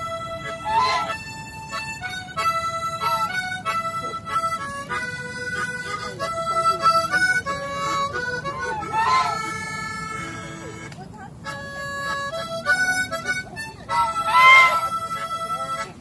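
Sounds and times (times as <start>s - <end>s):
harmonica melody: 0.0s - 16.0s
goose honk: 0.4s - 1.3s, 2.4s - 3.5s, 8.6s - 9.9s, 13.9s - 15.9s.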